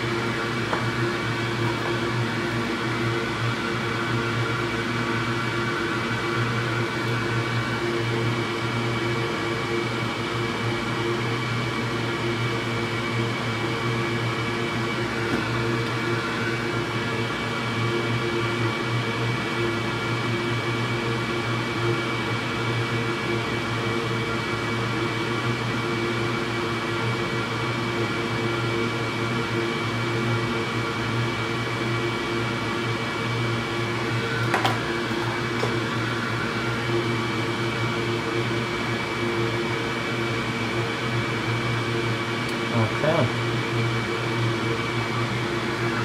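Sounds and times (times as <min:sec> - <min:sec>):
fan or motor humming: 0:00.0 - 0:46.0.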